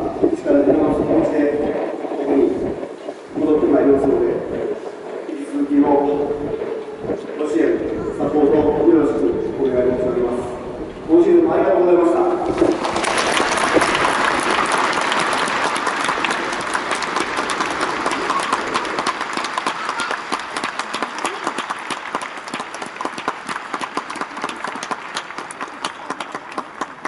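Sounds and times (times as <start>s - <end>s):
crowd applauding: 12.5s - 27.0s.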